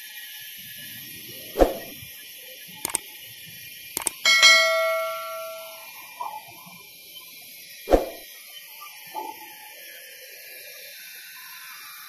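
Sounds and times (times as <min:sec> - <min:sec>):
notification bell ding: 0:04.3 - 0:05.9.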